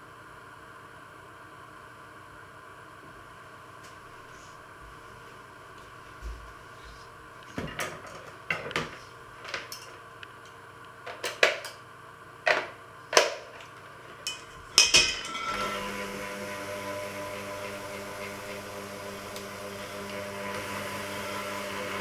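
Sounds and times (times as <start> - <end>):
hand mixer motor running: 15.0 - 22.0.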